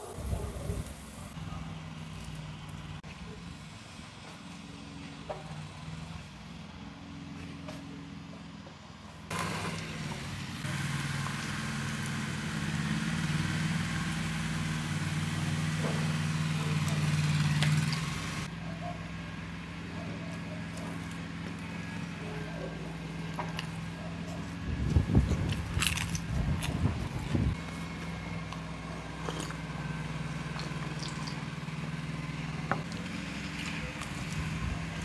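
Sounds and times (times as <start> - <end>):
low engine hum: 0.1 - 35.0
cola fizzing over ice: 30.5 - 31.5.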